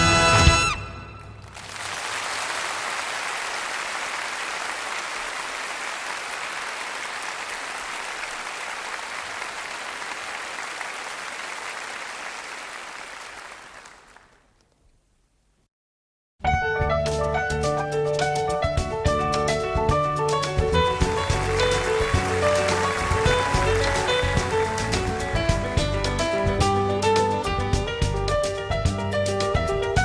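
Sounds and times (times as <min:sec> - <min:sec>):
orchestra music: 0:00.0 - 0:01.6, 0:19.2 - 0:30.0
audience applauding: 0:01.3 - 0:14.6, 0:20.6 - 0:26.6.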